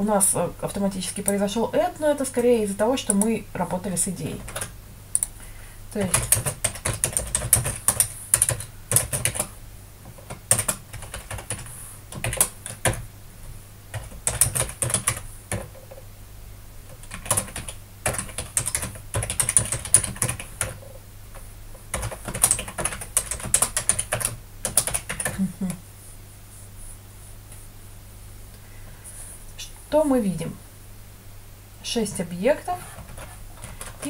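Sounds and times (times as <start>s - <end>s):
keyboard typing: 4.3s - 5.3s, 6.0s - 13.0s, 13.9s - 16.0s, 16.9s - 21.0s, 21.9s - 25.8s, 32.8s - 34.0s.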